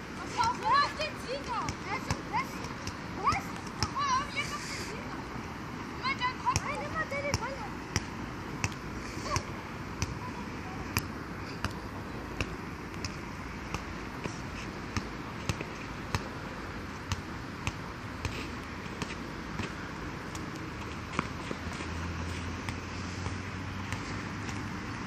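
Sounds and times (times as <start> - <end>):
background hiss: 2.4 - 6.4.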